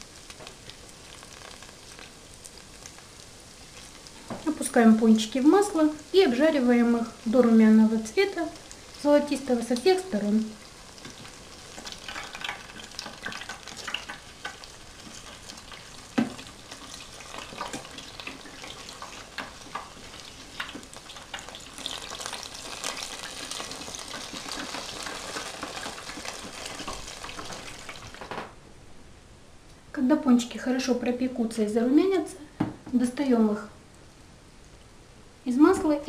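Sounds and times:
doughnuts sizzling in oil: 0.0s - 28.4s.

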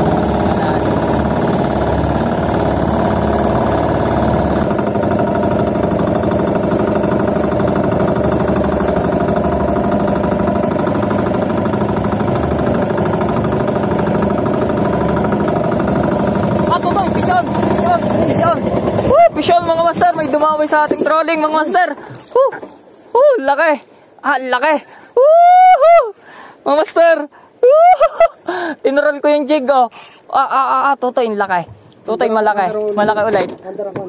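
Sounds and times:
boat engine running: 0.0s - 23.0s.

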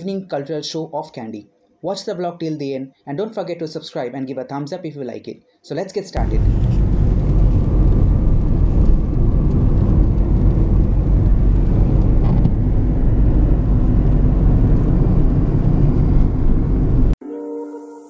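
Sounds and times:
car engine and tyre road noise: 6.2s - 17.2s.

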